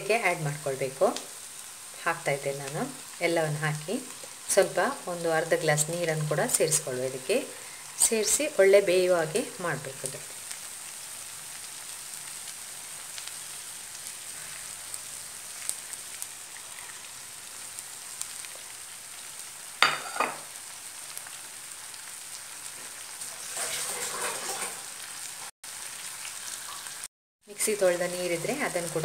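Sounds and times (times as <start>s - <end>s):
vegetables sizzling in a frying pan: 0.0s - 29.0s
liquid pouring into pan: 23.2s - 24.9s.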